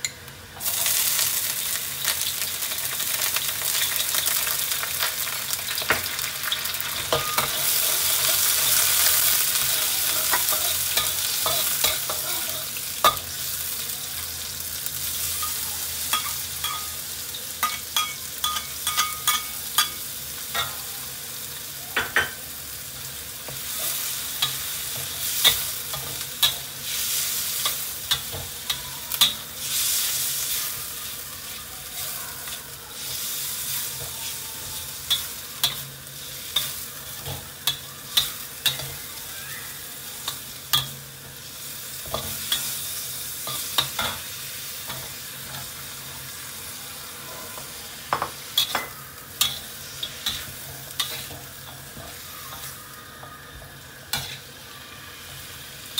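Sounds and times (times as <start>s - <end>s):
food sizzling in a wok: 0.0s - 55.9s
metal spatula scraping wok: 48.1s - 52.8s, 54.1s - 54.5s.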